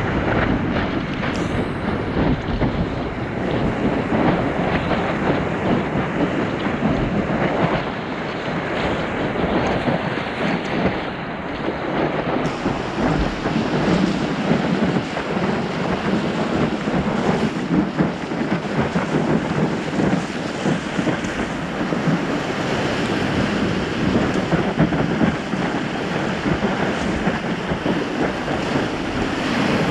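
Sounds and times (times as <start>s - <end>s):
water rushing and splashing: 0.0s - 29.9s
wind buffeting microphone: 0.0s - 29.9s.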